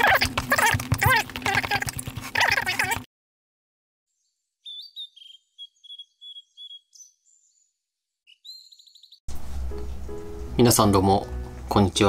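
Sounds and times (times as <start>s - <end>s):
songbird chirping: 4.1s - 11.6s.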